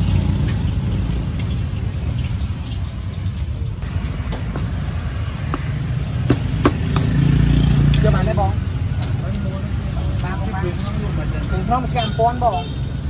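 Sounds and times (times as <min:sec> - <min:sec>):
low rumble of road traffic: 0:00.0 - 0:13.0
sharp knocks: 0:05.5 - 0:07.2.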